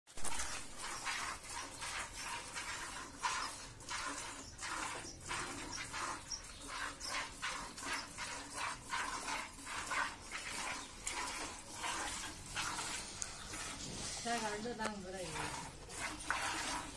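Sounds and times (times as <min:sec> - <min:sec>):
milk squirting into plastic bucket: 0:00.2 - 0:16.9.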